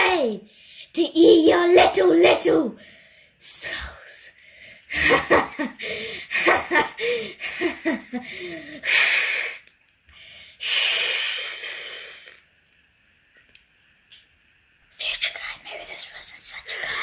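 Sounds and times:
child making growly noises: 0:00.0 - 0:00.5
child wheezing breaths: 0:05.8 - 0:09.6.

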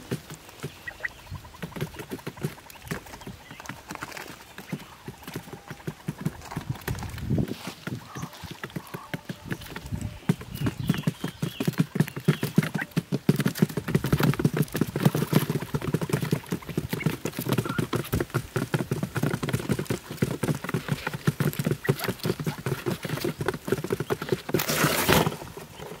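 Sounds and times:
quail pecking on cardboard: 0:00.0 - 0:26.0
cardboard box collapsing rustle: 0:24.4 - 0:26.0.

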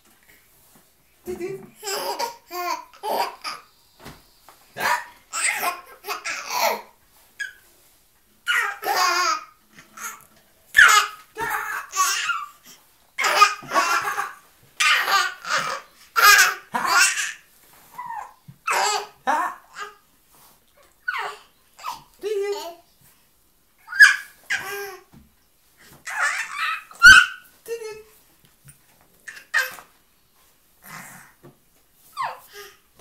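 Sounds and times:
baby laughing: 0:01.3 - 0:03.7, 0:04.8 - 0:07.6, 0:08.4 - 0:12.6, 0:13.2 - 0:17.4, 0:18.0 - 0:20.0, 0:23.8 - 0:25.1, 0:26.0 - 0:27.4, 0:29.2 - 0:29.9.

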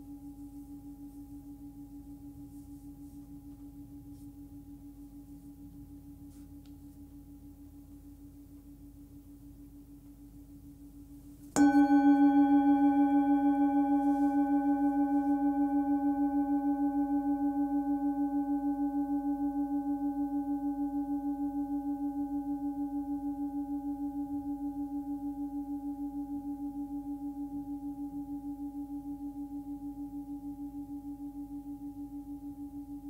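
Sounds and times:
singing bowl ringing: 0:11.5 - 0:33.0.

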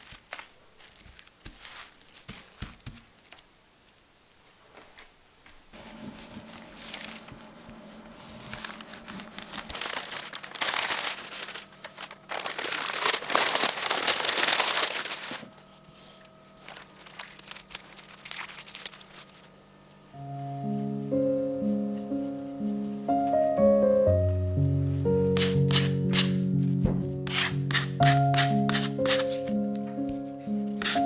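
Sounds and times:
plastic film and paper crinkling: 0:00.0 - 0:05.1, 0:05.8 - 0:19.6
piano music: 0:05.8 - 0:17.3, 0:20.0 - 0:31.0.

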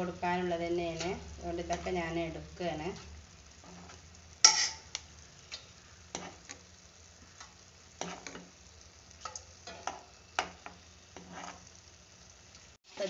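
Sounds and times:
faint simmering: 0:00.0 - 0:13.0
metal ladle scraping a pan: 0:00.9 - 0:02.0, 0:02.9 - 0:06.7, 0:07.4 - 0:08.6, 0:09.2 - 0:11.8.

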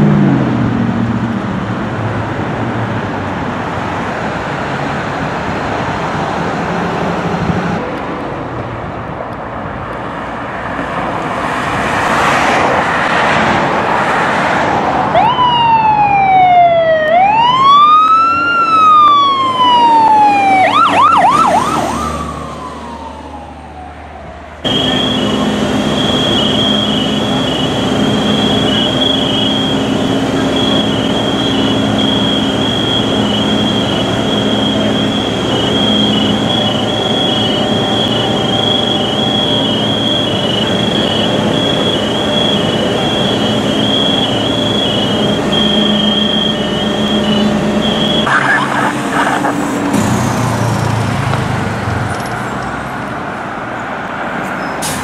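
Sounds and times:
road and engine noise: 0:00.0 - 0:55.0
fire truck siren: 0:10.4 - 0:55.0
machine drone with high whine: 0:24.6 - 0:51.2.

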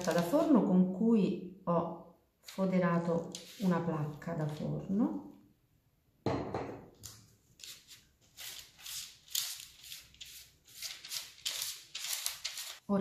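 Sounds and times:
spatula swishing on baking paper: 0:02.5 - 0:04.2, 0:07.6 - 0:12.8.

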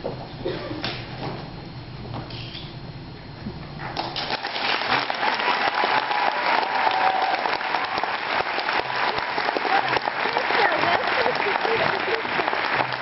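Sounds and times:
audience applauding: 0:04.2 - 0:13.0.

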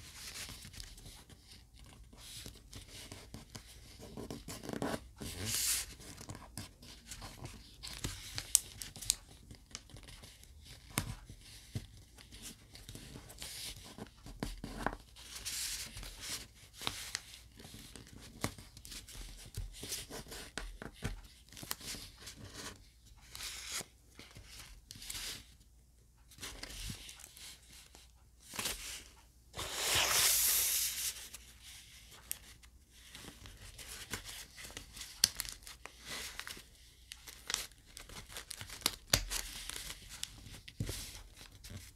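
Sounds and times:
paper crinkling and rustling: 0:26.4 - 0:41.9.

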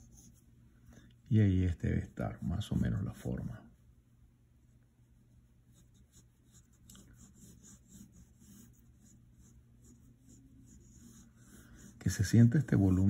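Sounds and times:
pencil scratching on paper: 0:00.0 - 0:00.4, 0:02.0 - 0:03.6, 0:05.0 - 0:13.0.

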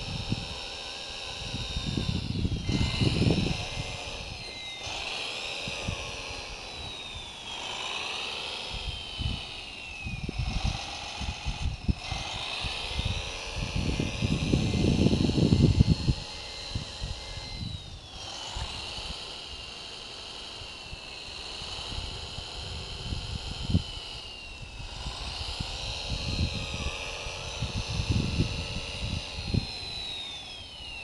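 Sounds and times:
wind buffeting microphone: 0:00.0 - 0:07.4, 0:08.6 - 0:19.3, 0:20.8 - 0:30.4
electric motors whining: 0:00.0 - 0:31.0.

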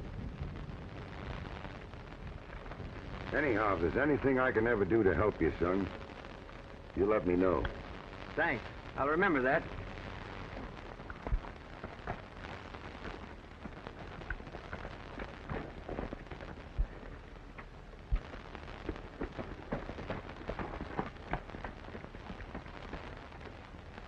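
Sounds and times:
old film soundtrack hiss and hum: 0:00.0 - 0:24.0
horse hooves clopping: 0:13.0 - 0:23.3.

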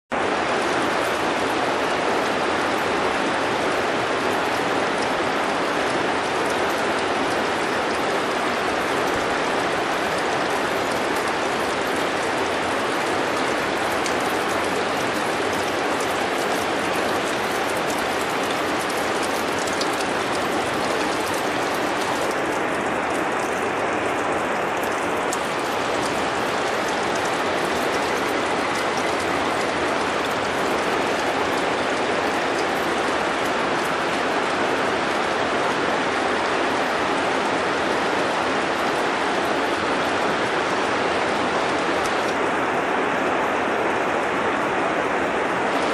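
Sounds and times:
water dripping and trickling: 0:00.2 - 0:45.9.

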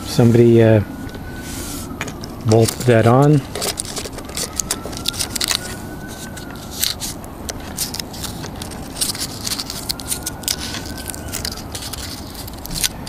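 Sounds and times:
battery lead clicks and crinkles: 0:02.0 - 0:13.0.

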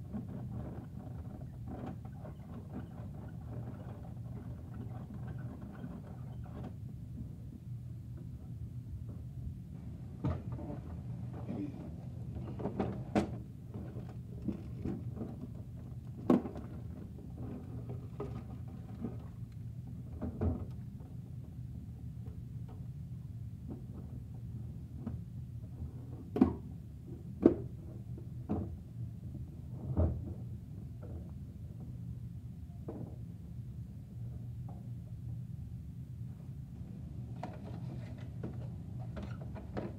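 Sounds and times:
steady low hum: 0:00.0 - 0:39.9.

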